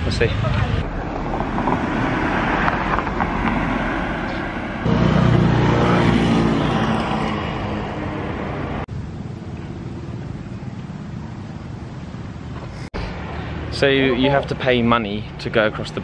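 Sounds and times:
vehicle engine passing by: 0.2 - 8.9.

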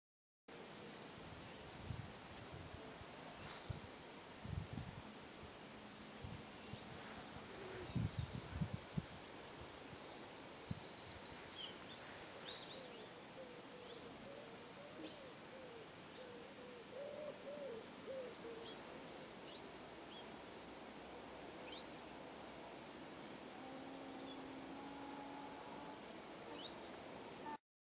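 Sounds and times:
small birds high chirps: 21.2 - 22.0, 26.4 - 27.0
bird low call: 23.4 - 27.6.

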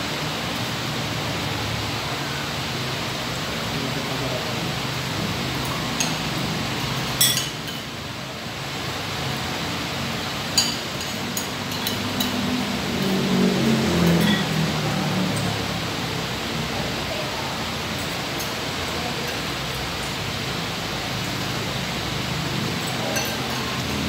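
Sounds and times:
steady background hiss: 0.0 - 24.0
cutlery clinking on plates: 5.9 - 7.9, 10.5 - 12.5, 14.0 - 14.7, 22.8 - 24.0.

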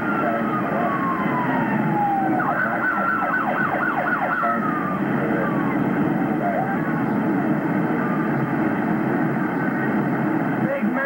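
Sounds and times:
emergency siren wailing and yelping: 0.0 - 8.8.

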